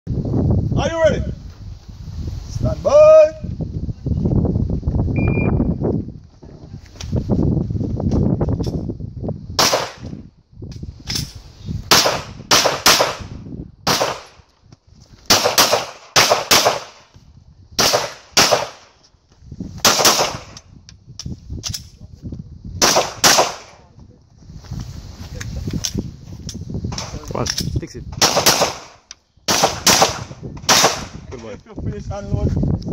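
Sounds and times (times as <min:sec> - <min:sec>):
pistol shots with echo: 0:11.9 - 0:13.3, 0:13.9 - 0:14.3, 0:15.3 - 0:17.0, 0:17.8 - 0:18.9, 0:22.8 - 0:23.8, 0:28.2 - 0:31.2.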